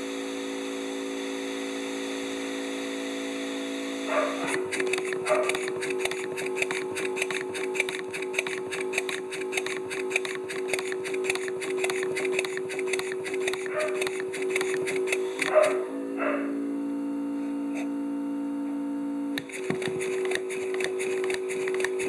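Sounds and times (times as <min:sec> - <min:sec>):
small compressor humming: 0:00.0 - 0:22.0
model steam engine exhaust beats: 0:04.4 - 0:15.8, 0:19.4 - 0:22.0
valve gear clicking: 0:04.4 - 0:15.8, 0:19.4 - 0:22.0.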